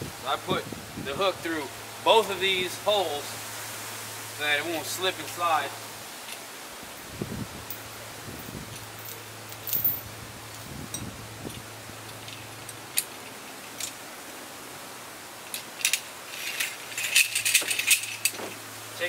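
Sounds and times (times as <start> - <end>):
metal chain clinking: 7.6 - 10.1, 15.5 - 18.6.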